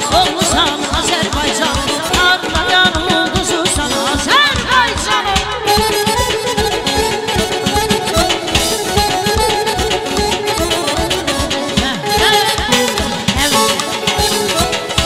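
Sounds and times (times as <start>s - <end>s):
button accordion melody: 0.0s - 15.0s.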